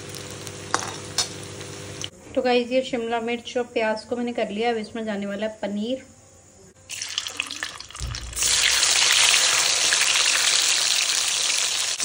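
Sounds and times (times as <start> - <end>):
cheese frying in hot oil: 0.0 - 2.1, 6.9 - 12.0
short low thump: 8.0 - 8.4.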